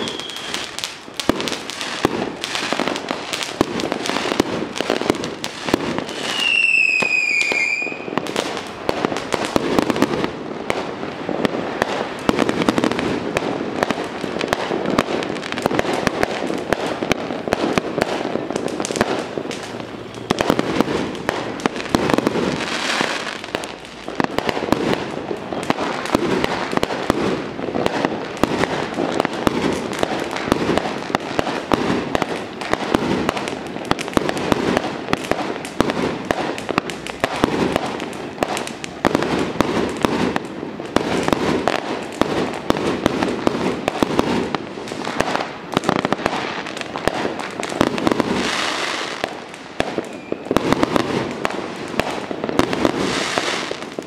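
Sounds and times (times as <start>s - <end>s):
short high whistle: 0.0s - 0.6s, 6.3s - 8.1s
firecrackers crackling: 0.0s - 54.0s.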